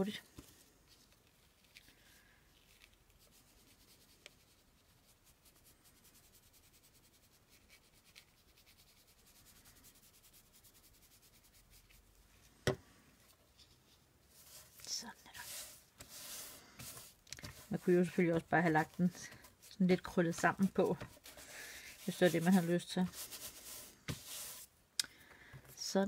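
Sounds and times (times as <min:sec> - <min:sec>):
fingers rubbing paper: 0:14.4 - 0:24.6.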